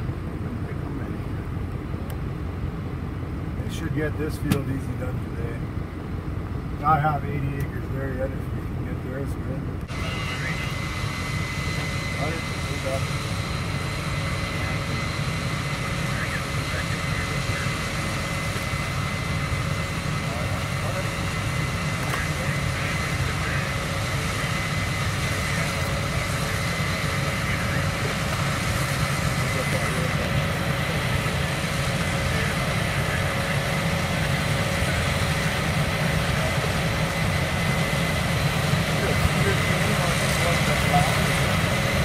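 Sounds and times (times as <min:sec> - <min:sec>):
diesel machinery low drone: 0:00.0 - 0:42.0
thin high whine: 0:09.9 - 0:42.0.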